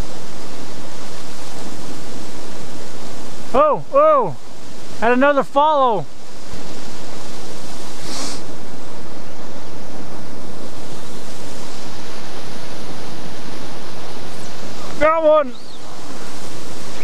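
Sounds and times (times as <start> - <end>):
brief higher hiss: 7.8 - 8.6.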